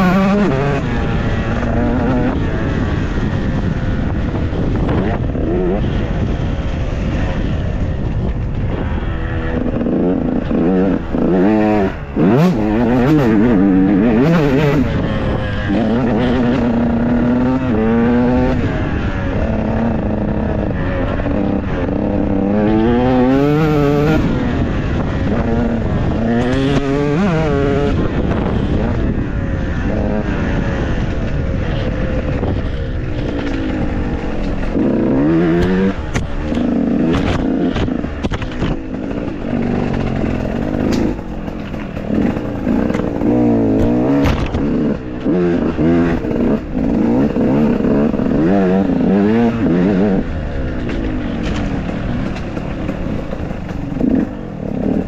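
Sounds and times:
motorcycle engines revving: 0:00.0 - 0:55.0
knocks and clatter: 0:31.2 - 0:50.0, 0:50.8 - 0:55.0.

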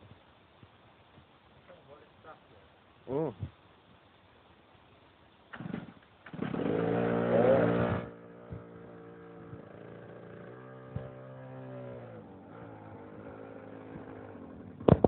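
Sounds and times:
go-kart engine starting and revving: 0:05.5 - 0:15.0.

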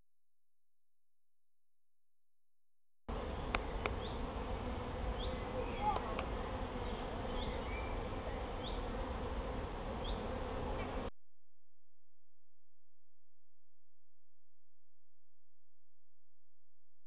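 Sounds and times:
bees buzzing: 0:03.1 - 0:11.1.

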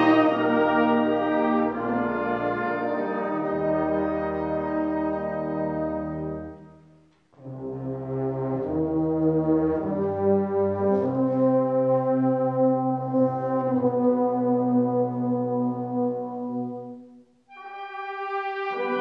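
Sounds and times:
brass band playing a hymn: 0:00.0 - 0:19.0.

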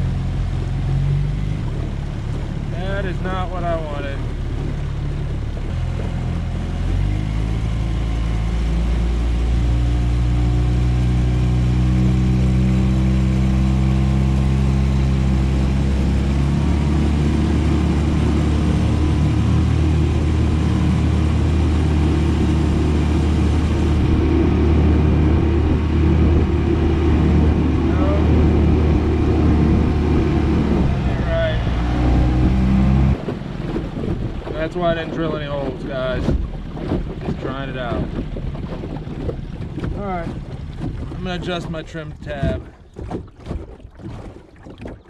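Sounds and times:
outboard motor running: 0:00.0 - 0:45.0
rushing water: 0:00.0 - 0:45.0
wind: 0:00.0 - 0:45.0.

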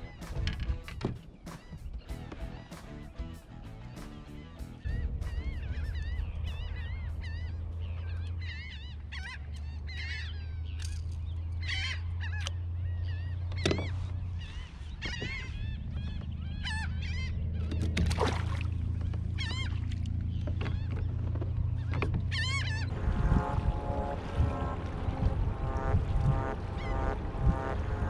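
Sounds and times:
birds honking: 0:00.0 - 0:18.0, 0:18.8 - 0:28.0
steady low rumble: 0:01.9 - 0:09.2, 0:14.1 - 0:28.0.

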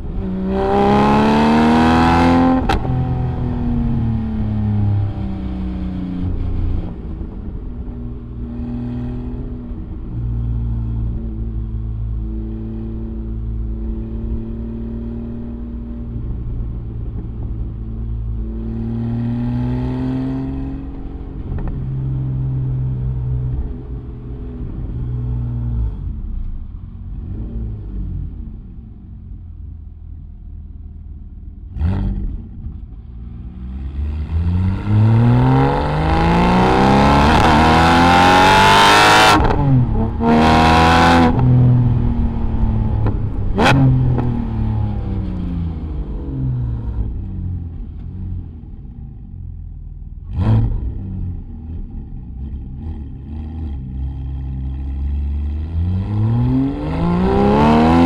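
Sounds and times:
engine cruising at low revs: 0:00.0 - 0:58.0
sports car engine accelerating: 0:00.0 - 0:58.0
exhaust crack: 0:39.3 - 0:53.3.

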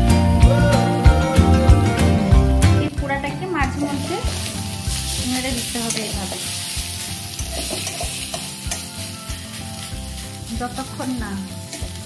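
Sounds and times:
paste sizzling in a metal pan: 0:03.4 - 0:12.0
steel spatula scraping a pan: 0:03.8 - 0:12.0.

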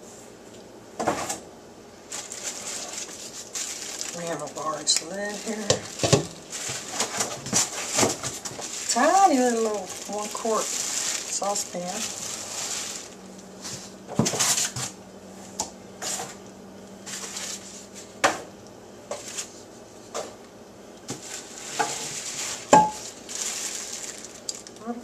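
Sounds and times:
plastic wrap crinkling: 0:02.0 - 0:14.9, 0:21.1 - 0:25.0
pots and pans knocking: 0:05.6 - 0:06.4, 0:22.7 - 0:23.0.

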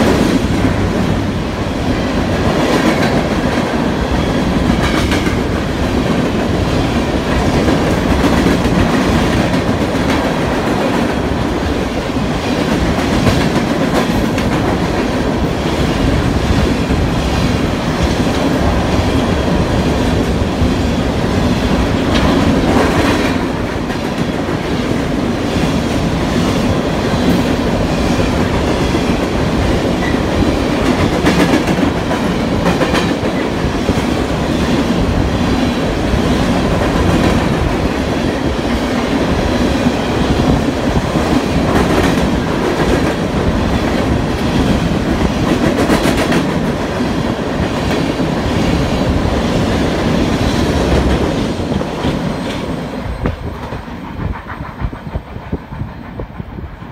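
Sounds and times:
clickety-clack over rail joints: 0:00.0 - 0:56.9
steel wheels rumbling on rail: 0:00.0 - 0:56.9.

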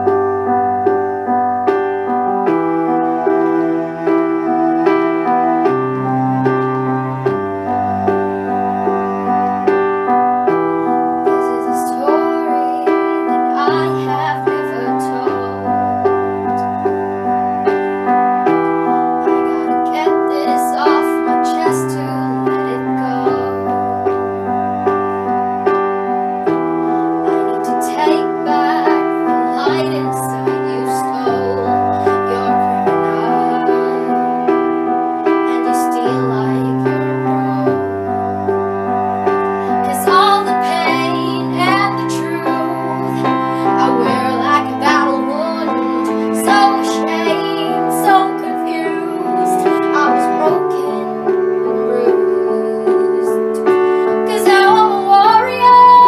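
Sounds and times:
piano playing repeated chords: 0:00.0 - 0:56.0
girl singing a ballad: 0:11.3 - 0:15.9, 0:19.0 - 0:23.9, 0:27.2 - 0:34.4, 0:35.3 - 0:38.0, 0:39.6 - 0:56.0.

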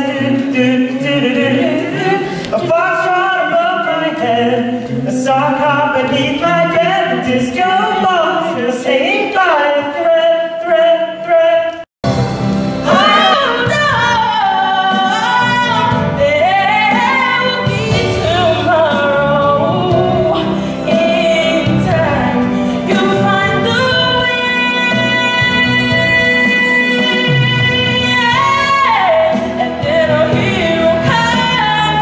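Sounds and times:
woman singing: 0:00.0 - 0:11.8, 0:12.9 - 0:32.0
instrumental accompaniment: 0:12.0 - 0:32.0.

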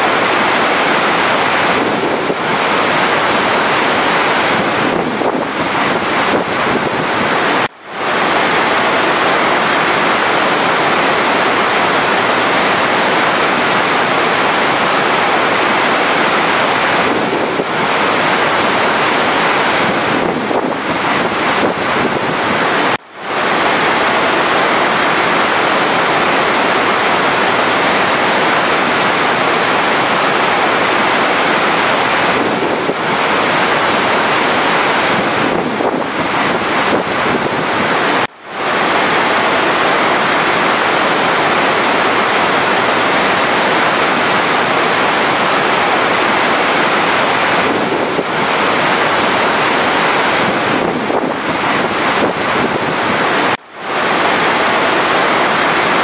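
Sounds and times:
waterfall rushing and crashing: 0:00.0 - 0:56.0.

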